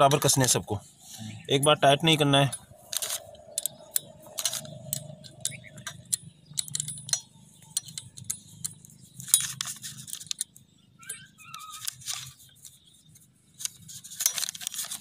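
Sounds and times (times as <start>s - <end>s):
allen key clicking in bolts: 2.5s - 11.2s.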